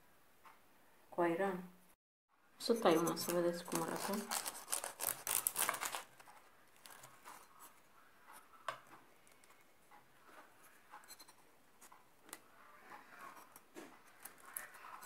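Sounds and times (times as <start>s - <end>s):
knife cutting crisp pastry: 2.9s - 7.8s.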